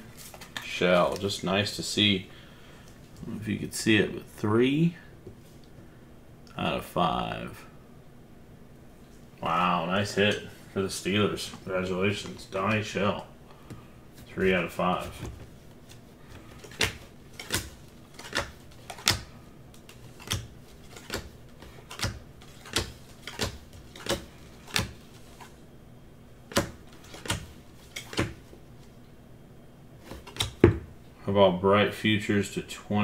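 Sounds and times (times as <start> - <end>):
cards flipping clicks: 15.9 - 25.5, 26.5 - 28.4, 30.0 - 30.7.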